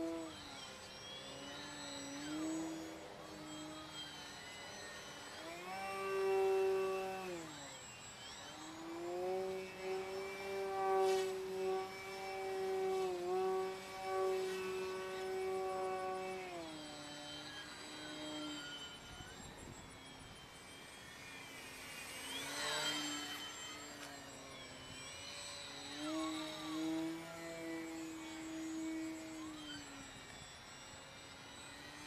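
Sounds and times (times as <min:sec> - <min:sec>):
model plane electric motor whine: 0:00.0 - 0:32.0.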